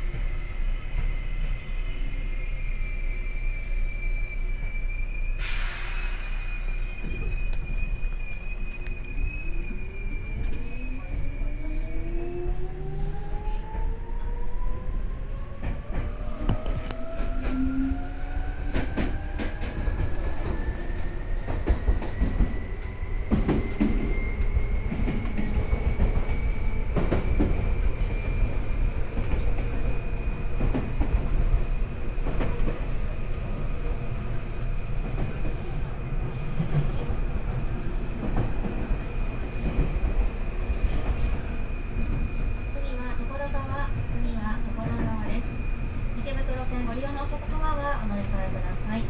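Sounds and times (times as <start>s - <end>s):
rail joint clicks: 5.4s - 10.8s, 15.5s - 33.2s.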